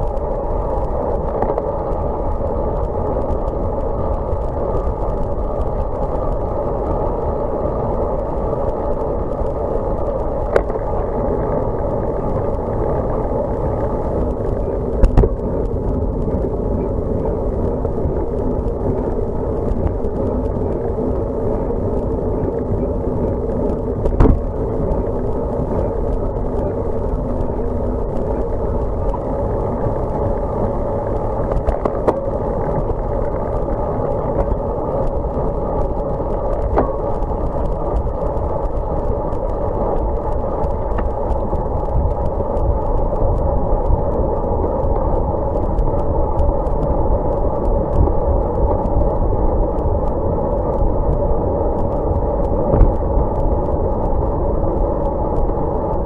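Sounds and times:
bike tyre and wind rush: 0.0s - 56.0s.

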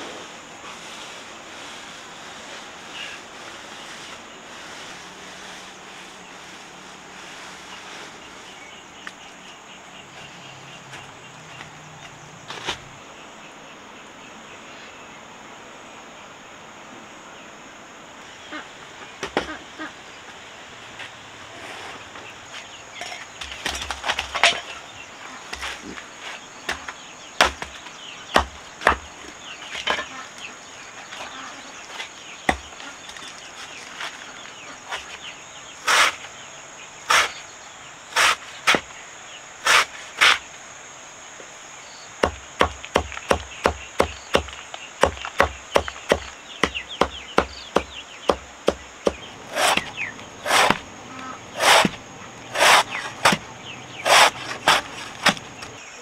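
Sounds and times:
high insect drone: 0.0s - 56.0s
sharp chopping blows: 42.2s - 50.9s, 51.5s - 55.8s.

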